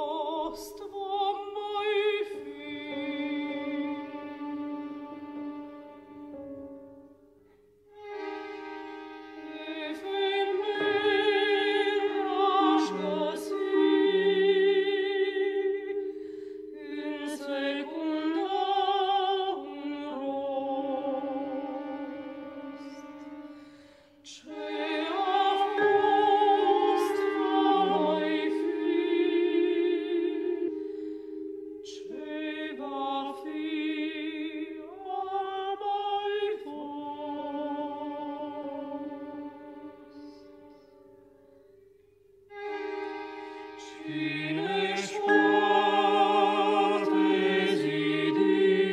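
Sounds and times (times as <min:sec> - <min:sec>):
sustained tones: 0:07.4 - 0:36.1, 0:38.0 - 0:48.9
vocal ensemble singing held notes: 0:08.0 - 0:40.8, 0:42.5 - 0:48.9.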